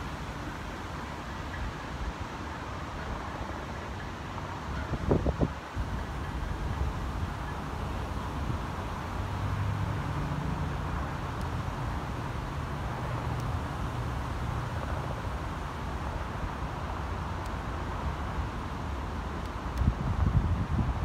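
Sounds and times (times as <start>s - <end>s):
wind buffeting microphone: 4.7s - 7.4s, 19.7s - 21.0s.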